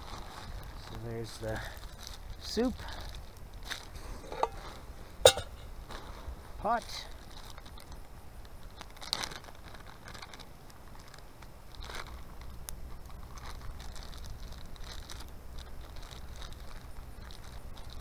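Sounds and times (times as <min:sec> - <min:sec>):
cooking gear clicks and scrapes: 0:03.2 - 0:05.6.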